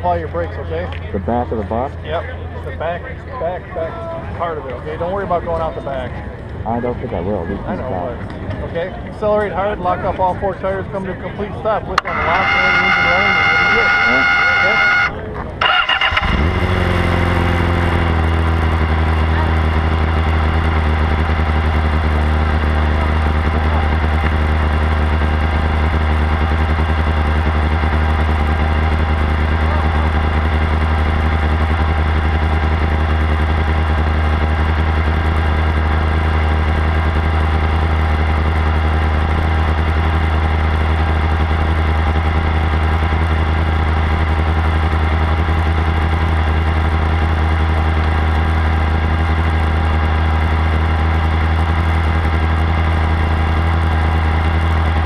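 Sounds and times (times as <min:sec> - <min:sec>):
race car engine idling: 0:00.0 - 0:55.0.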